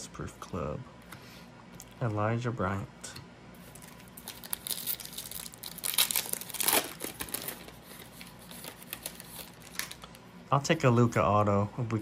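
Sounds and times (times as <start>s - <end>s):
foil wrapper crinkling and tearing: 3.7s - 10.1s.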